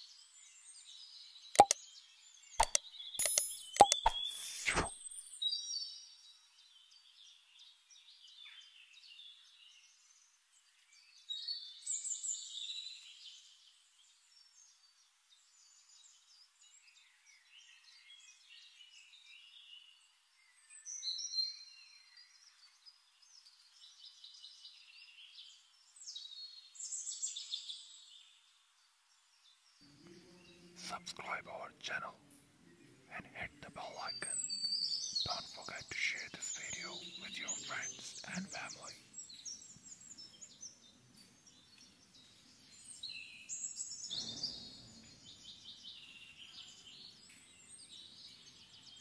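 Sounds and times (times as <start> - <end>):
sharp click: 1.6 - 1.8, 2.6 - 5.0
birds chirping: 2.6 - 5.2, 32.8 - 40.8.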